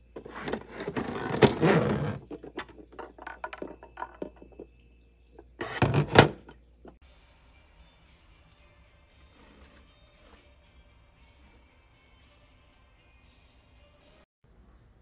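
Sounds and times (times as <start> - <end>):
plastic parts scraping: 0.1 - 4.6.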